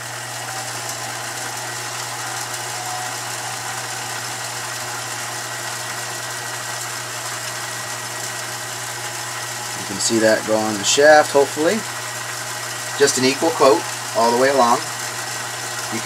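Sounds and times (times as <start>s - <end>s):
lathe motor humming: 0.0s - 16.0s.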